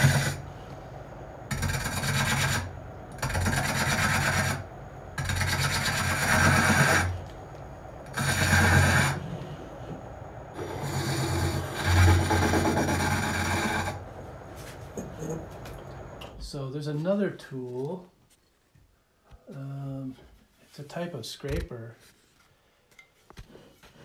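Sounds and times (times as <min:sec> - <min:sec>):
lathe running: 0:00.0 - 0:00.5, 0:01.4 - 0:07.3, 0:08.0 - 0:14.5
hook tool cutting spinning wood: 0:01.5 - 0:04.6, 0:05.2 - 0:07.1, 0:08.1 - 0:09.2, 0:10.6 - 0:14.0.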